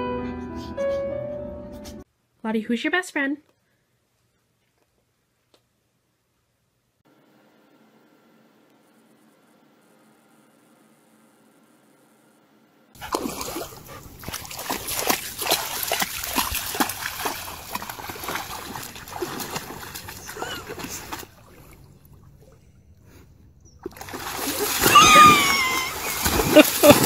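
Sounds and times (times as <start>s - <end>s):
dog splashing through shallow water: 13.0s - 22.4s, 23.8s - 27.0s.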